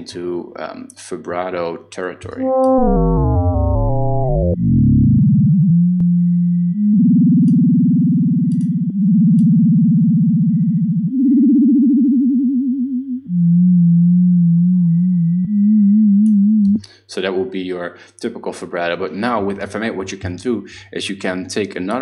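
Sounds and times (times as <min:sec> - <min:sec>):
synthesizer low sine tone wobbling: 0:02.3 - 0:16.8.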